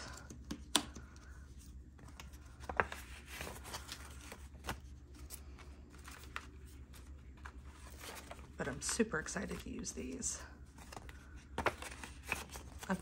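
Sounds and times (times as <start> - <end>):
faint low hum: 0.0 - 13.0
paper rustling and sliding: 2.2 - 8.5.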